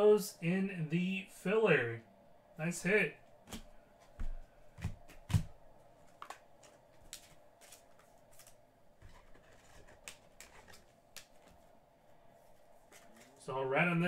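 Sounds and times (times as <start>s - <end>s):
low steady hum: 0.0s - 14.0s
cards clicking and rustling: 4.8s - 11.6s.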